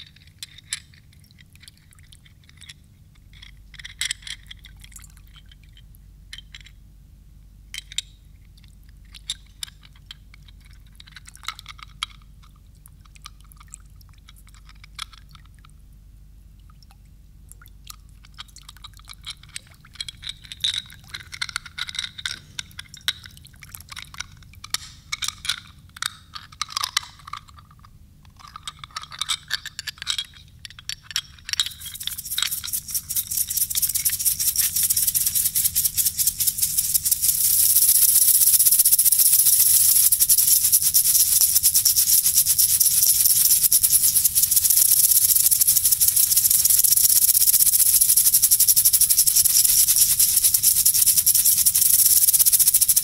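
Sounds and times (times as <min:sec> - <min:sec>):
shaker rattle: 0:00.0 - 0:06.8, 0:07.7 - 0:15.7, 0:18.2 - 0:53.0
hand percussion clicks and clinks: 0:18.3 - 0:53.0.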